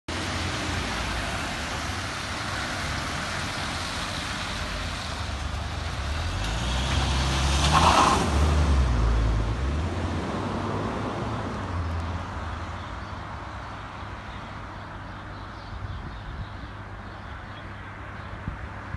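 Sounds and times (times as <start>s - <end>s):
traffic hiss on wet tarmac: 0.1s - 6.6s
van passing on wet road: 0.1s - 12.7s.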